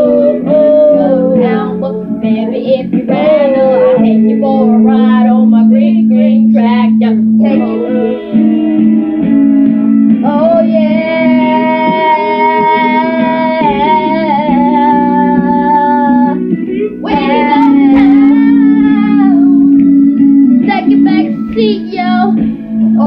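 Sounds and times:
guitar: 0.0s - 23.0s
person singing: 0.0s - 23.0s.

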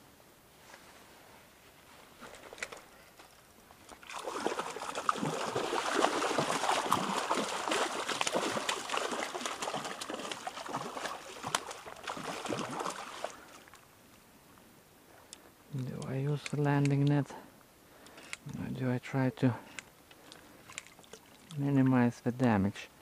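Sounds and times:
fish splashing in water: 4.0s - 13.8s.

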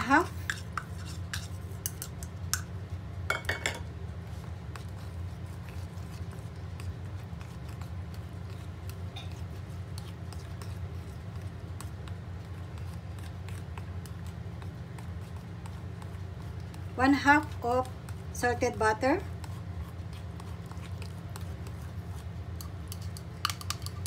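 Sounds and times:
spatula mixing wet food: 0.0s - 24.0s
spatula clicking against glass: 22.9s - 24.0s.

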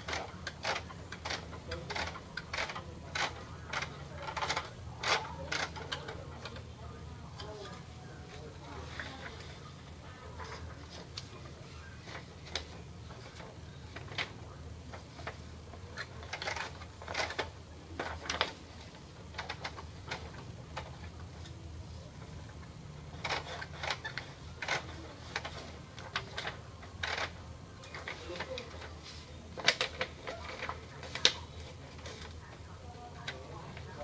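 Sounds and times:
paper rustling: 8.3s - 34.0s.

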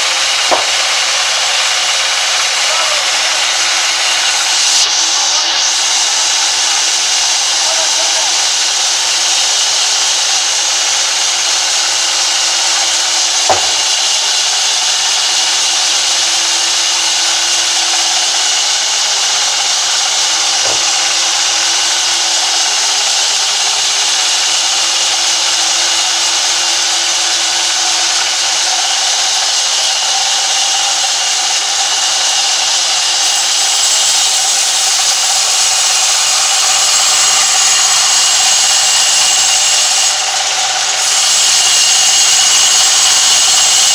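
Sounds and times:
band saw cutting wood: 0.0s - 43.9s
sharp knock: 0.4s - 0.9s, 13.4s - 13.9s.

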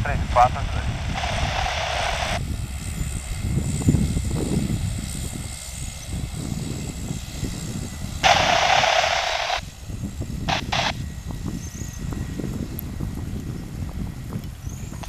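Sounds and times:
radio static burst: 0.0s - 2.4s, 8.2s - 9.7s, 10.5s - 11.0s
turboprop engine rumble: 0.0s - 15.0s.

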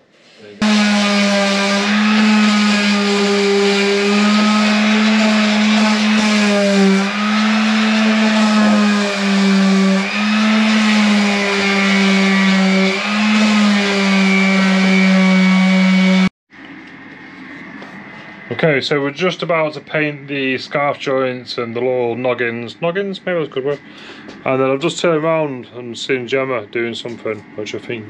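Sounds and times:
power tools whining: 0.6s - 16.3s.

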